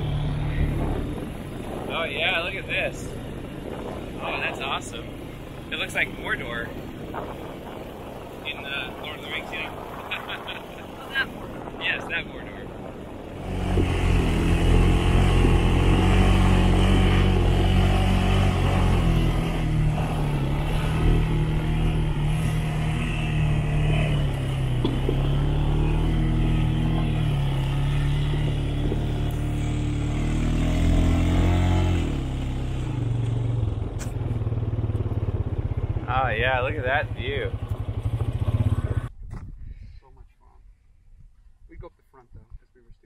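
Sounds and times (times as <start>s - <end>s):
atv engine revving: 0.0s - 39.1s.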